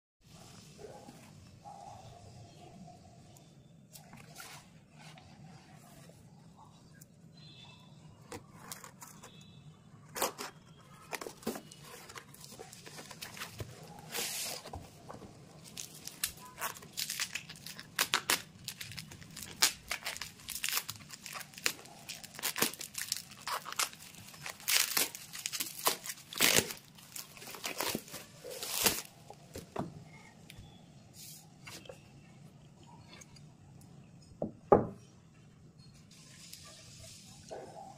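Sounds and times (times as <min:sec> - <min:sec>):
plastic wrap crinkling: 0:10.1 - 0:29.6
packaging tearing: 0:15.6 - 0:29.2.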